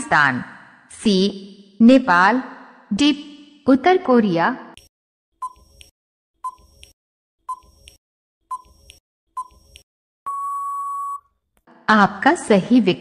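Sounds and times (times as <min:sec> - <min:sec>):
long steady beep: 0:10.3 - 0:11.3
short electronic beeps: 0:10.3 - 0:11.3.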